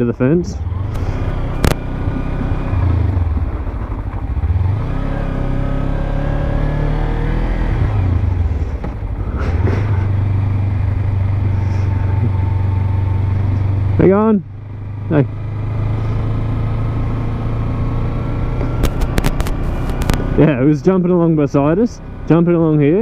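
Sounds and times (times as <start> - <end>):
motorcycle engine running: 0.0 - 23.0
sharp click: 18.6 - 20.2.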